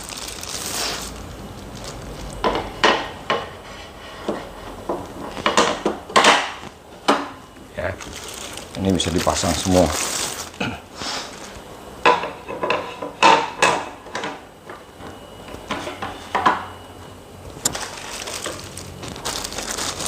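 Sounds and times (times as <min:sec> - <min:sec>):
plastic packaging rustling: 0:00.0 - 0:02.7, 0:07.8 - 0:11.6, 0:17.5 - 0:20.0.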